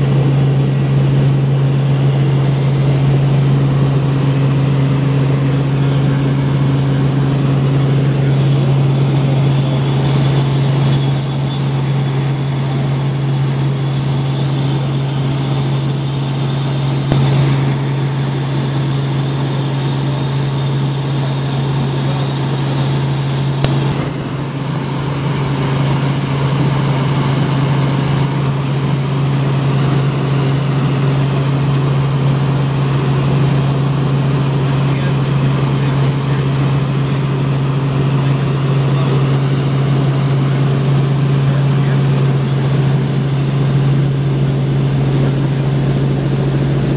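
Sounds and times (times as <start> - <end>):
helicopter rotor and engine drone: 0.0 - 46.9.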